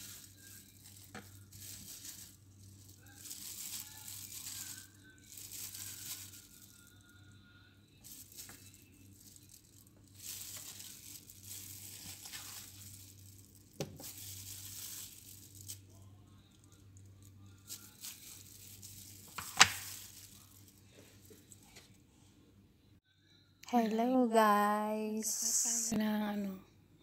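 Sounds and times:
plastic bag rustling: 0.0s - 7.1s, 8.0s - 16.0s, 17.5s - 22.0s
faint low hum: 0.0s - 27.0s.

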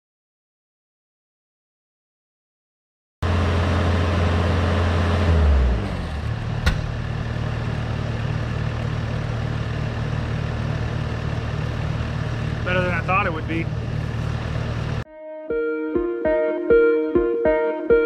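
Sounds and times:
loader engine revving and idling: 3.2s - 15.0s.

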